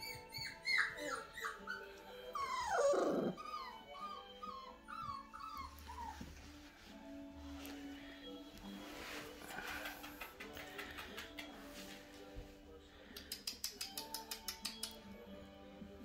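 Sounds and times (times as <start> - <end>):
puppy whimpering: 0.0 - 6.4.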